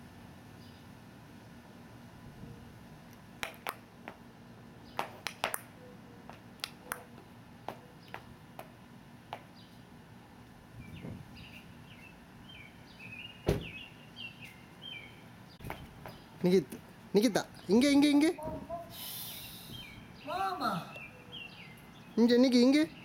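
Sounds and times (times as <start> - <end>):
small birds chirping: 7.7 - 8.4, 9.4 - 9.9, 10.7 - 23.0
loud thump: 13.4 - 13.8.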